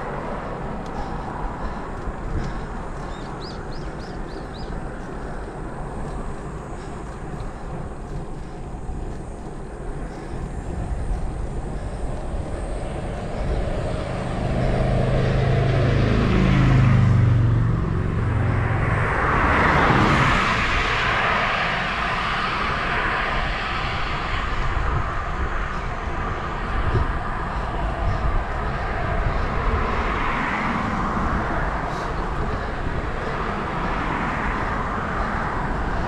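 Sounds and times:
wind rumble on microphone: 0.0 - 36.0
vehicle engine passing: 12.6 - 23.1.

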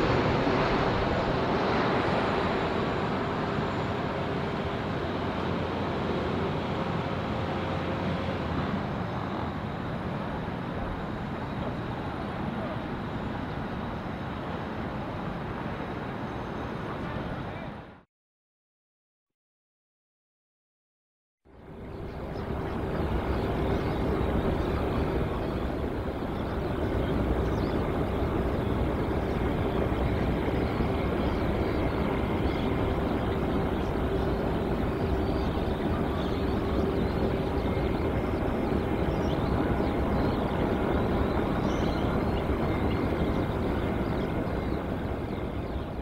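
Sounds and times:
distant jet engines humming: 0.0 - 17.9, 21.5 - 46.0.

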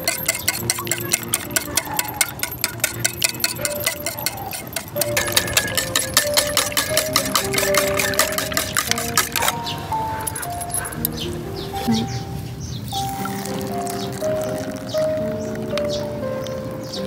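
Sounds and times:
whisk beating eggs in metal bowl: 0.0 - 9.6.

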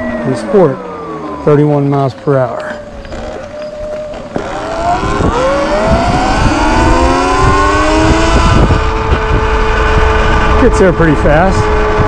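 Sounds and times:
electric motor whining: 0.0 - 11.0
low rumble: 2.6 - 12.0.

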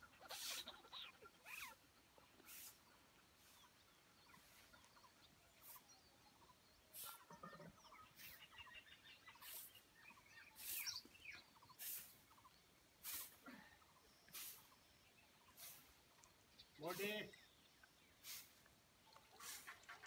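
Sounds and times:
faint bird chirping: 0.0 - 20.0
soft rustling hisses: 2.4 - 4.8, 9.3 - 12.4, 13.0 - 13.4, 14.3 - 17.2, 18.2 - 20.0.

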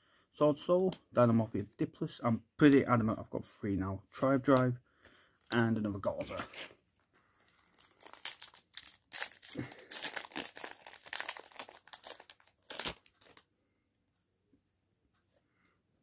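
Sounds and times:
foil wrapper crinkling and tearing: 7.4 - 13.4.

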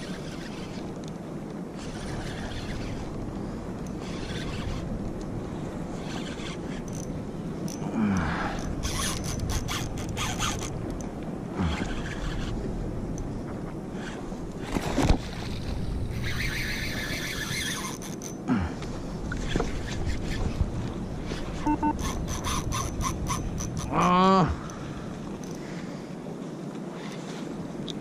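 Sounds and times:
fishing reel clicking: 0.0 - 1.2, 1.8 - 4.9, 6.0 - 7.8, 8.5 - 11.1, 11.7 - 12.6, 16.1 - 18.4, 21.7 - 24.1
fishing reel zipping run: 0.0 - 5.0, 5.9 - 12.6, 13.9 - 18.4, 19.3 - 20.6, 21.2 - 24.2
wind: 0.0 - 28.0
water noise: 19.1 - 25.8.

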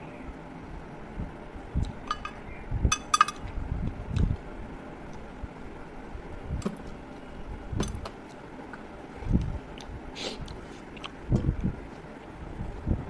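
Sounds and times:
fingers clinking on metal plate: 2.0 - 3.4
soft chewing: 8.2 - 11.2.

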